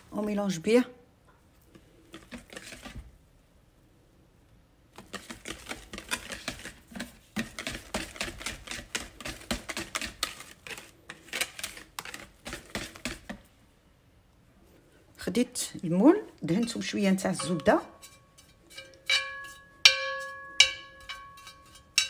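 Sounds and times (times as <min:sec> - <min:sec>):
whisk beating batter in bowl: 0:05.0 - 0:13.4.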